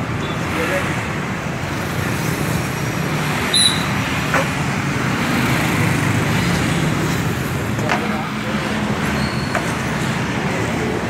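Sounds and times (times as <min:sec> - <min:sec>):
short high beep: 0:03.5 - 0:04.0.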